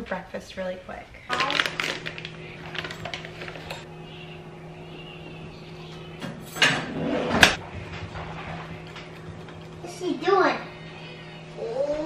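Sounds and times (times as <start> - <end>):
packet crinkling as torn open: 1.3 - 3.8.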